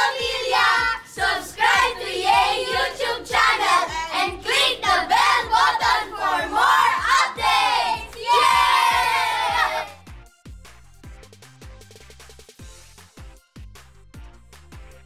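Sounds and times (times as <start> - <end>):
children singing together: 0.0 - 10.0
music with steady beat: 0.0 - 15.0.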